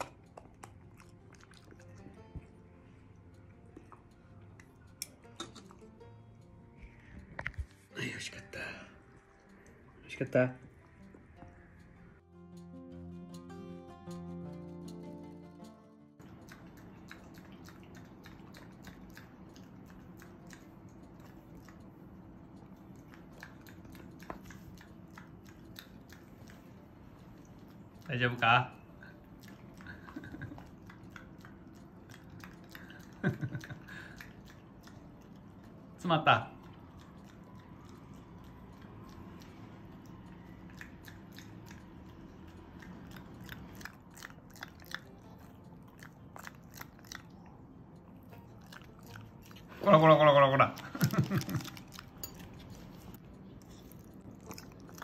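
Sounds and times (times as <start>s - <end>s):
dog smacking mouth wet clicks: 3.3s - 5.9s, 16.2s - 26.7s, 27.4s - 35.5s, 36.6s - 47.4s.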